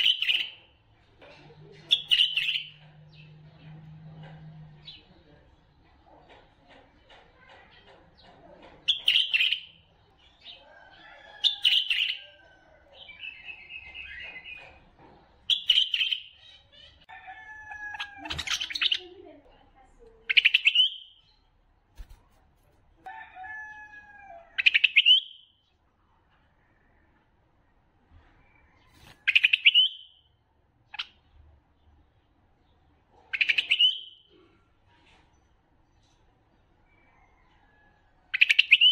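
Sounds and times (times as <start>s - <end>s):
bird song: 0.0s - 19.2s, 20.2s - 21.6s, 24.6s - 25.9s, 28.2s - 38.9s
bird chattering: 1.7s - 3.3s, 6.0s - 10.6s, 11.4s - 12.4s, 13.0s - 17.1s, 17.9s - 19.4s, 20.2s - 21.4s, 24.6s - 25.4s, 29.2s - 30.2s, 33.2s - 34.6s, 38.3s - 38.9s.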